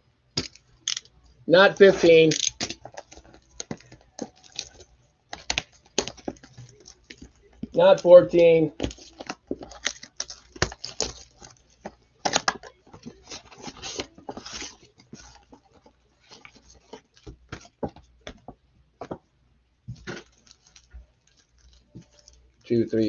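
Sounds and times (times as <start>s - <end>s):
card packs crinkling: 0.4s - 18.4s, 19.9s - 23.0s
hands handling cardboard box: 1.8s - 19.2s.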